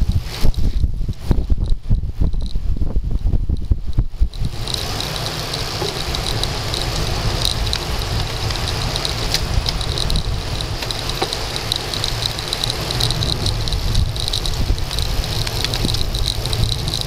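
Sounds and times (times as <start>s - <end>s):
tyre noise on asphalt: 0.0s - 17.0s
wind buffeting microphone: 0.0s - 17.0s
fast high ticking: 4.2s - 17.0s.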